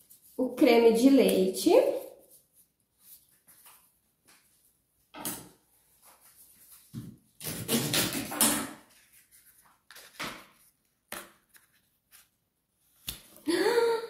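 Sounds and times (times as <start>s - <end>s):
kitchen clattering and rustling: 7.4s - 8.9s.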